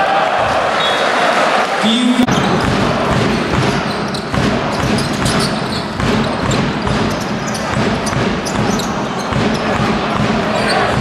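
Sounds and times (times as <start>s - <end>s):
crowd noise and voices: 0.0s - 11.0s
basketball bouncing on court: 2.3s - 11.0s.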